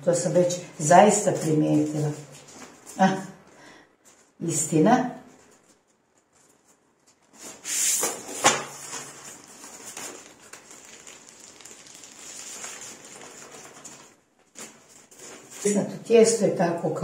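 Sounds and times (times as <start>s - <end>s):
baking paper rustling: 0.5s - 3.2s, 5.3s - 16.0s.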